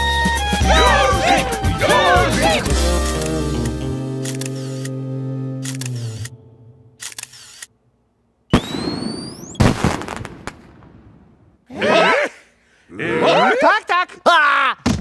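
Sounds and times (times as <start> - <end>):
held music chord: 0.6 - 7.0
sharp clicks: 3.0 - 5.0, 5.6 - 6.4, 7.0 - 7.7.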